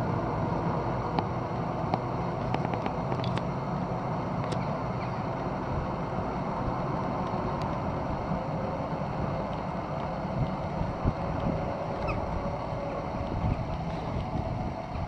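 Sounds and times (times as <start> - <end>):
train running rumble: 0.0 - 15.0
wind buffeting microphone: 4.3 - 15.0.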